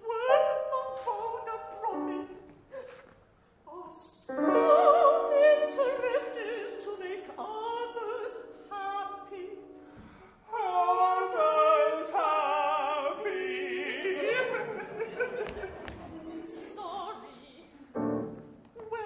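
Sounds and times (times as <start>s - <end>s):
opera singers with vibrato: 0.0s - 17.7s, 18.7s - 19.0s
musical accompaniment: 18.0s - 18.8s.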